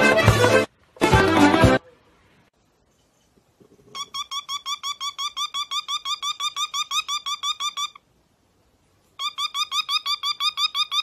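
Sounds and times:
cockatiel beeping: 3.9 - 8.0, 9.2 - 11.0.

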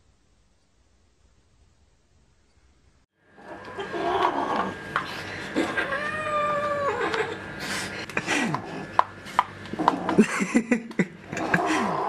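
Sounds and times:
cat yowling: 5.6 - 7.2.

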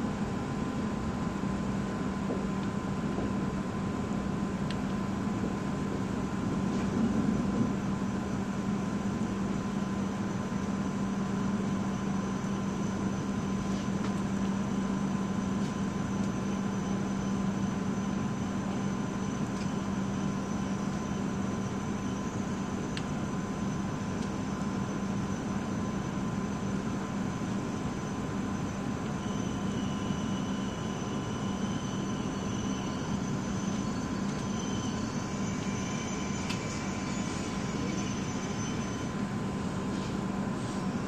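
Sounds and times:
train interior rumble and hiss: 0.0 - 41.0.

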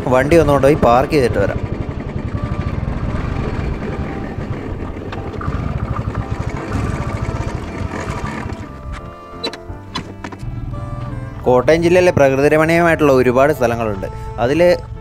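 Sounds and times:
motorcycle engine at low revs: 0.0 - 12.3.

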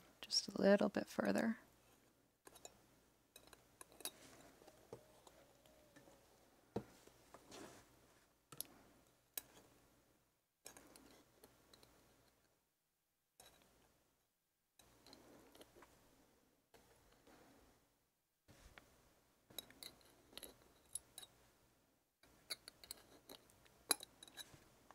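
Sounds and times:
soft handling noise: 3.4 - 9.8, 18.5 - 19.0, 22.2 - 24.9.

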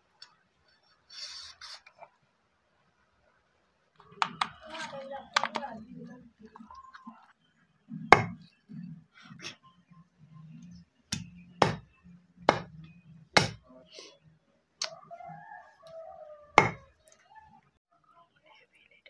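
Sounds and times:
knife chopping raw chicken: 8.2 - 8.4, 11.1 - 11.9, 12.5 - 12.7, 13.4 - 13.6, 16.6 - 16.9.

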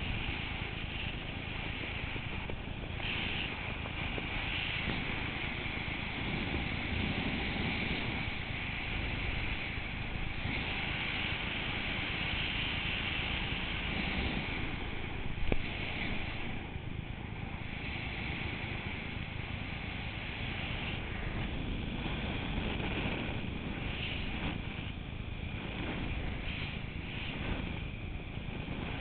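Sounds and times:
wind rushing over microphone: 0.0 - 29.0.

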